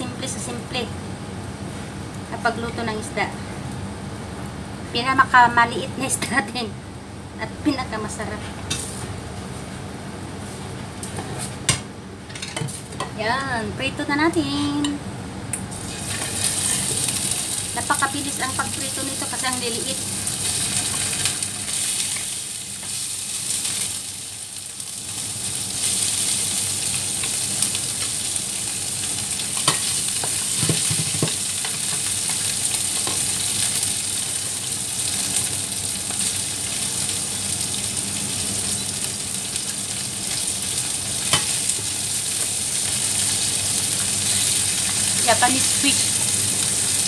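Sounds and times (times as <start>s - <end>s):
fish sizzling in hot oil: 15.7s - 47.0s.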